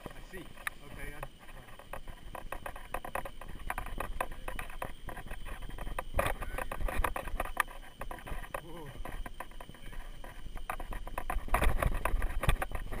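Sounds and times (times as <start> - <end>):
crunches clicks and knocks: 0.0 - 13.0
unicycle rolling on dirt trail: 0.0 - 13.0.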